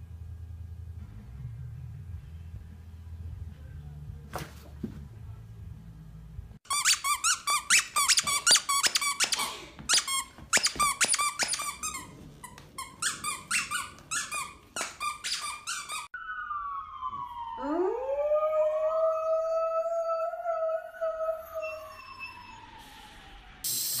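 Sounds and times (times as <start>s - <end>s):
squeaky toy squeaks: 6.7s - 16.2s.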